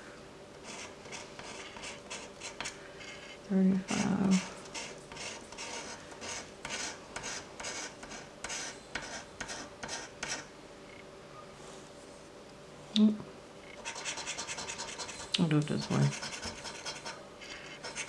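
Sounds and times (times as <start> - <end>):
lottery ticket being scratched: 13.8 - 18.0.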